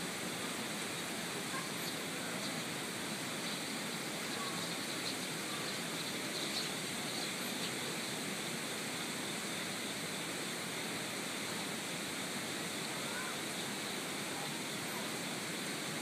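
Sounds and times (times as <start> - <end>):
stream rushing: 0.0 - 16.0
faint bird chirps: 1.5 - 2.7, 3.4 - 7.9, 12.8 - 15.1.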